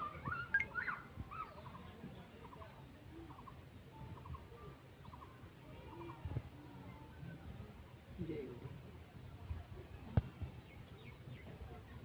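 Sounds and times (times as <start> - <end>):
small repeated chirps: 0.5 - 0.7.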